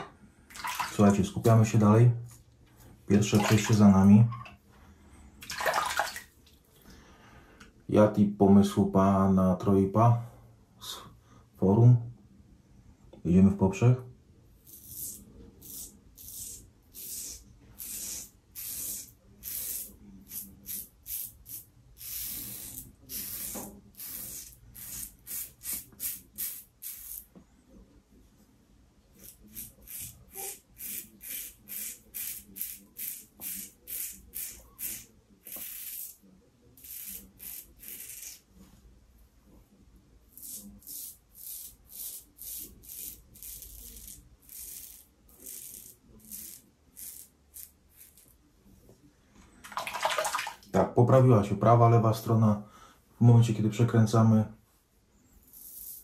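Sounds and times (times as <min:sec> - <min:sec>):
razor scraping stubble: 0:14.6 - 0:27.3, 0:29.2 - 0:36.2, 0:36.8 - 0:38.5, 0:40.3 - 0:48.4, 0:55.4 - 0:56.0.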